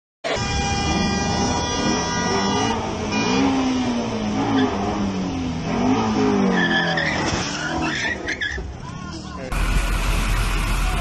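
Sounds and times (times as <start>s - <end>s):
car engine revving: 0.3s - 8.3s, 9.5s - 11.0s
tyres squealing: 6.4s - 9.1s.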